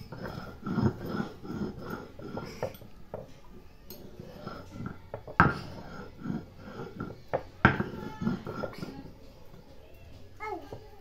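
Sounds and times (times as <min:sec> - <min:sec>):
stone pestle knocking and scraping: 0:00.0 - 0:03.3, 0:04.0 - 0:09.1.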